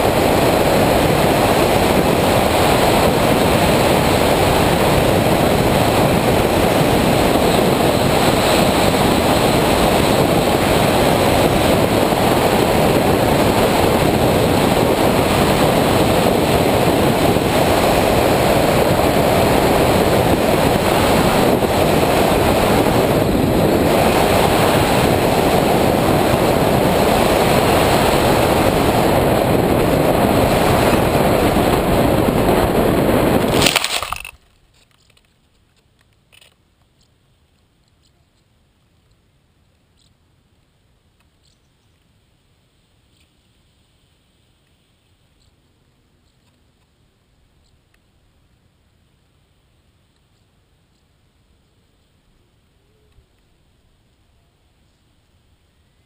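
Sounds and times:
wind rush: 0.0 - 34.4.

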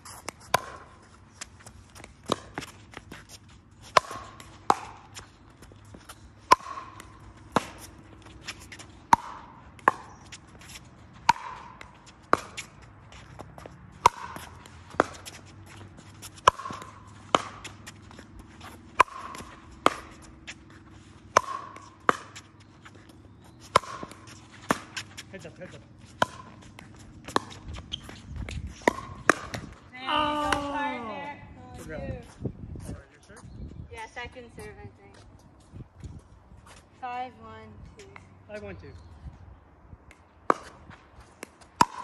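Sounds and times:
ball bouncing on hard court: 0.1 - 0.9, 2.0 - 3.3, 3.9 - 22.6, 23.5 - 30.8, 41.5 - 42.0.

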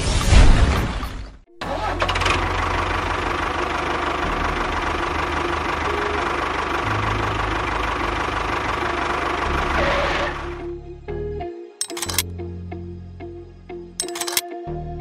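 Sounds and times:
tractor engine chugging: 1.6 - 10.5.

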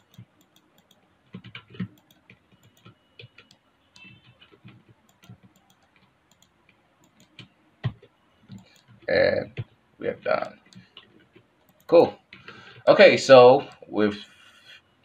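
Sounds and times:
computer mouse and keyboard clicks: 0.0 - 9.7, 10.4 - 12.6.

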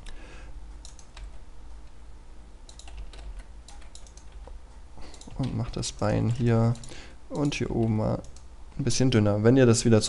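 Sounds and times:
low steady hum: 0.0 - 10.0
keyboard and mouse clicking: 0.8 - 1.4, 2.7 - 8.5.

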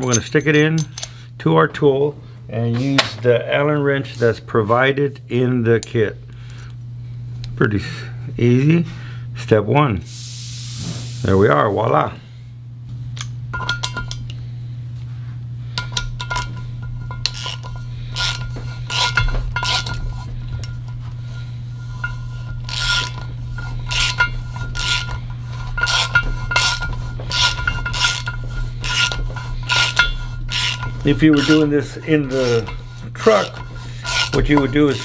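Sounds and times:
steady low hum: 0.0 - 35.0
hand ratchet clicking: 15.8 - 20.8, 21.9 - 35.0.

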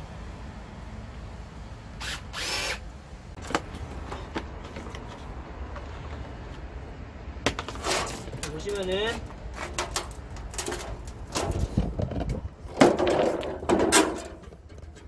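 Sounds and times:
cordless drill whirring: 2.0 - 2.8.

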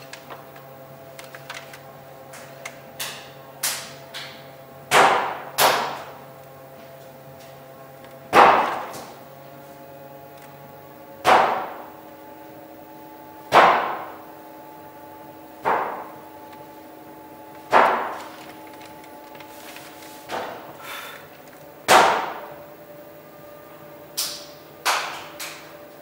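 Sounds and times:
hum of held tones: 11.8 - 20.2, 20.8 - 26.0.

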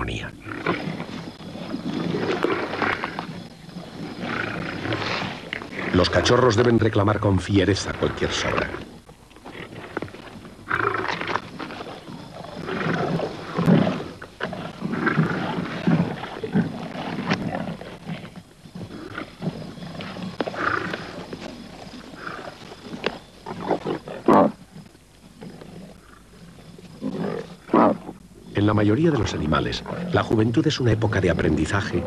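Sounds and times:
lions growling and snarling: 0.0 - 32.0.

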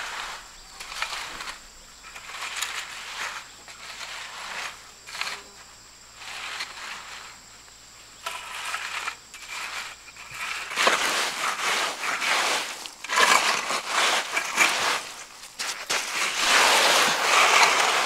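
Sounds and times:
wet cement mix scraping: 0.0 - 5.5, 6.2 - 7.4, 8.2 - 18.0.

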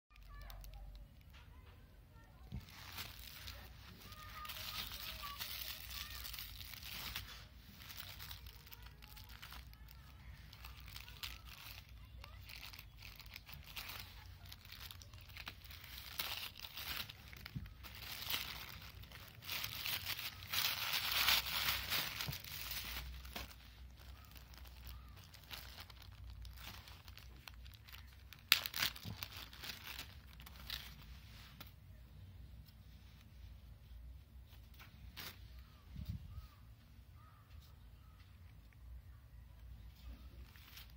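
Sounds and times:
plastic bag crinkling: 0.1 - 31.7, 40.0 - 40.9.

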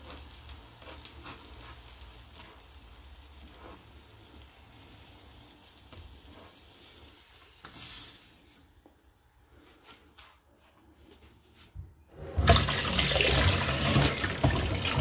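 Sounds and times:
bread sizzling in pan: 0.0 - 9.6.

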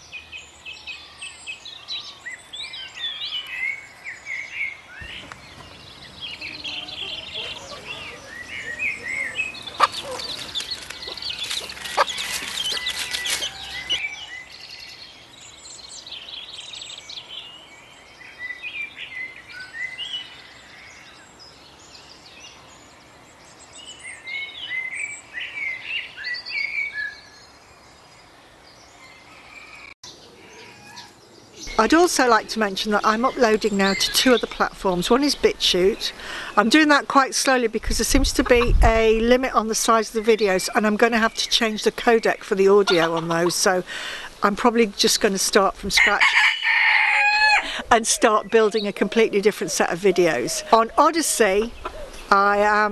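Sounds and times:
birds chirping and singing: 0.0 - 52.9
crackling rustling noise: 9.5 - 14.0.

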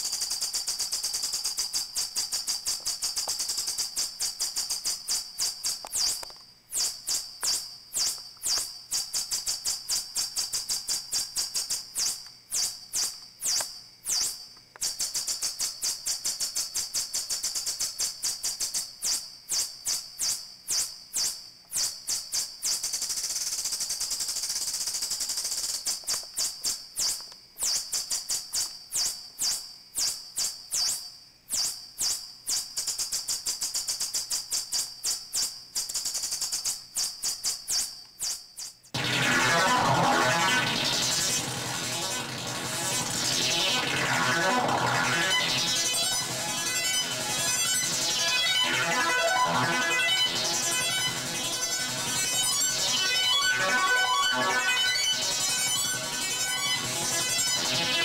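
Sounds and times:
synthesizer steady hiss: 38.7 - 58.0
synthesizer clicks and chirps: 39.0 - 58.0.

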